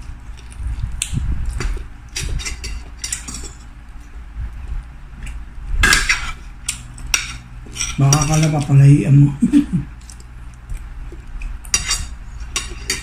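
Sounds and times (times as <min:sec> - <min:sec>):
chewing and wet mouth noises: 0:00.0 - 0:02.3, 0:03.1 - 0:05.5, 0:10.0 - 0:11.8.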